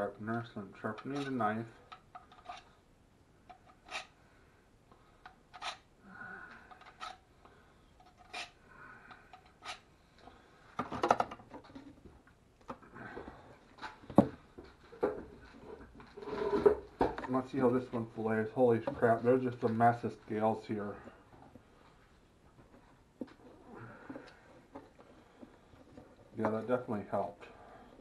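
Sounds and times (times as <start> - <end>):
knife scraping through sharpener: 3.7 - 4.2, 5.6 - 5.8, 8.1 - 8.6.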